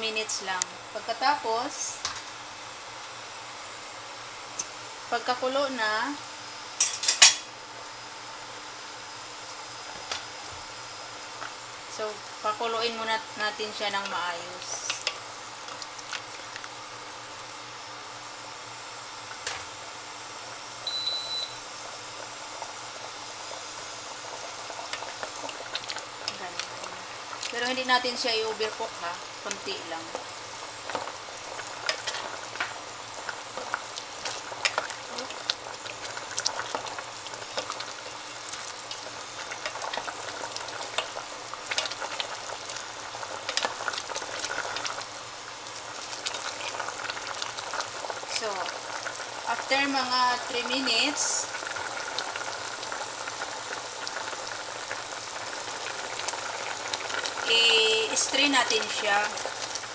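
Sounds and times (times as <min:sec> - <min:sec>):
water boiling in a pot: 0:00.0 - 0:59.9
short high electronic beep: 0:20.9 - 0:21.6
spatula stirring in a pot: 0:31.0 - 0:42.8.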